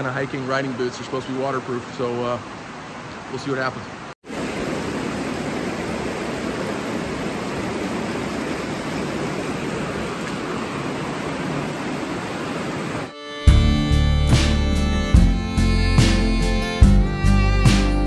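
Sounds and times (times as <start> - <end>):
running water: 0.0 - 13.6
fiddle music: 13.1 - 18.0.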